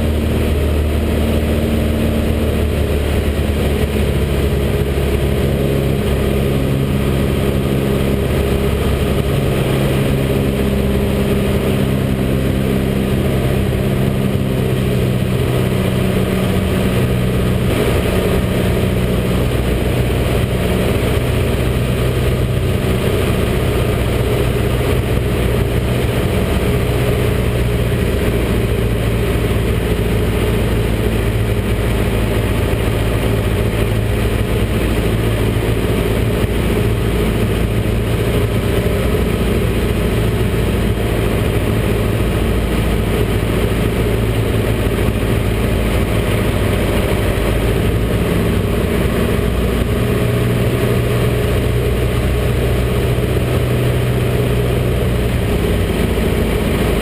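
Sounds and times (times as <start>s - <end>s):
aircraft engine and propeller droning: 0.0s - 57.0s.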